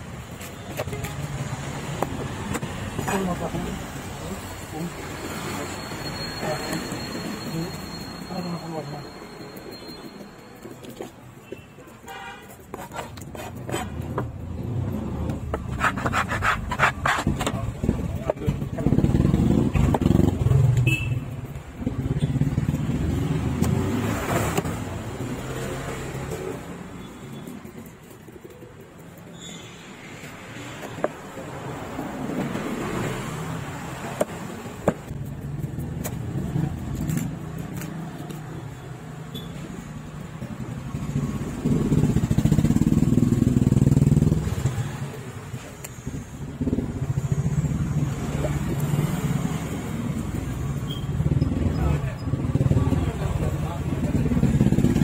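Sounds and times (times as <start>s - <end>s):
tool scraping fish on wood: 12.4s - 14.4s, 15.4s - 17.7s
vehicle engine: 13.6s - 28.2s, 29.4s - 55.0s.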